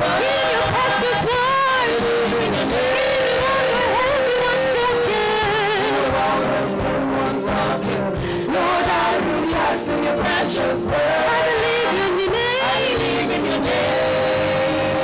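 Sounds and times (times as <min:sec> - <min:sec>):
gospel choir singing: 0:00.0 - 0:15.0
instrumental backing: 0:00.0 - 0:15.0.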